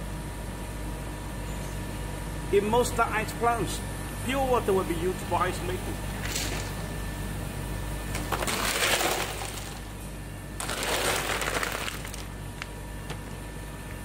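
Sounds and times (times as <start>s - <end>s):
ice crunching and clinking: 8.2s - 10.0s, 10.6s - 12.4s
ice clicks: 10.6s - 12.3s.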